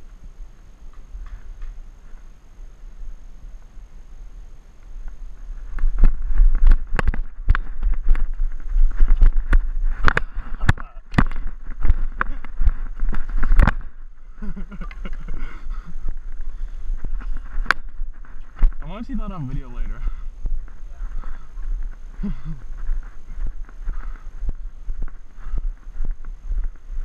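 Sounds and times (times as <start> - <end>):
low rumble: 0.0 - 27.0
faint voices: 18.8 - 24.4.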